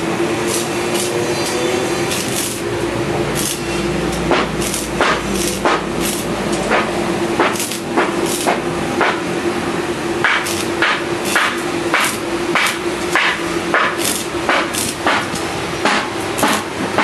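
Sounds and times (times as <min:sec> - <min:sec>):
steady hum: 0:00.0 - 0:17.0
metal being hammered: 0:03.4 - 0:09.4, 0:10.2 - 0:17.0.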